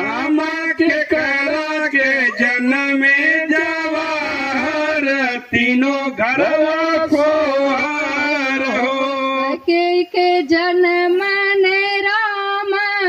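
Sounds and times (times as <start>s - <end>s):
person singing folk song through loudspeaker: 0.0s - 13.0s.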